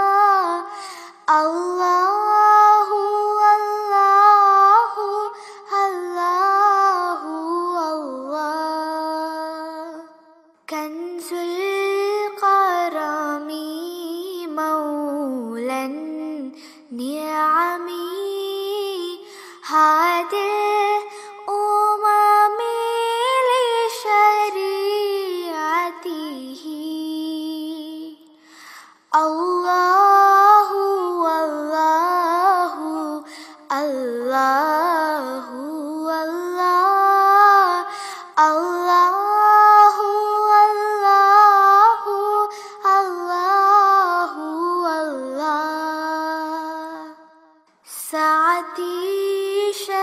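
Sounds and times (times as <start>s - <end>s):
person singing unaccompanied: 29.1s - 47.2s.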